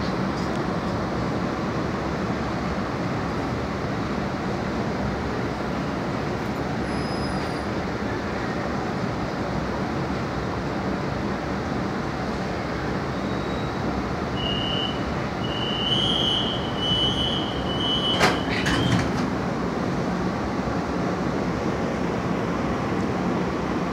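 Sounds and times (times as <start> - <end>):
subway train wheels rumbling: 0.0 - 23.9.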